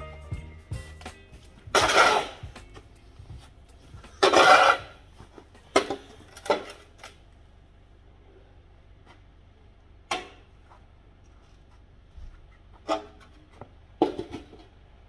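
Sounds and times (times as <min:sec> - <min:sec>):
snow shovel scraping pavement: 0:01.7 - 0:02.6, 0:04.1 - 0:05.0.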